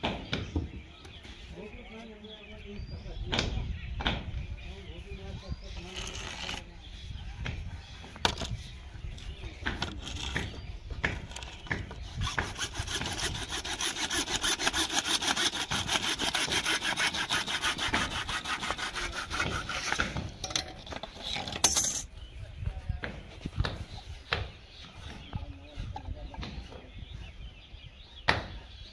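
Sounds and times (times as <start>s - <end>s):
hacksaw sawing plastic pipe: 11.6s - 20.3s
knocks and handling noises: 19.4s - 22.1s.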